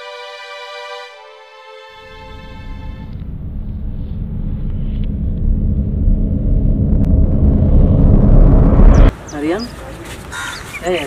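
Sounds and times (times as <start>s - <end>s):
deep rumble: 2.0s - 9.1s.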